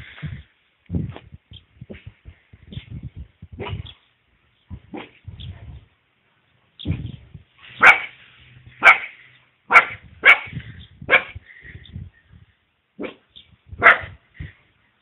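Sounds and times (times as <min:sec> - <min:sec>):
puppy barking: 0:07.8 - 0:08.1, 0:08.8 - 0:09.1, 0:09.7 - 0:11.4, 0:13.8 - 0:14.2.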